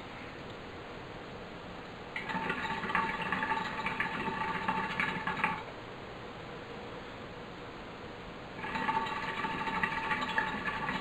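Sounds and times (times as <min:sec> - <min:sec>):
hookah water bubbling: 0:02.2 - 0:05.7, 0:08.6 - 0:11.0.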